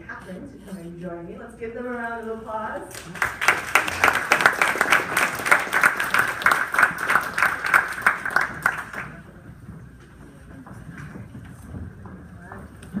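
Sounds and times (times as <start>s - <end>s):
audience applauding: 3.0s - 9.3s.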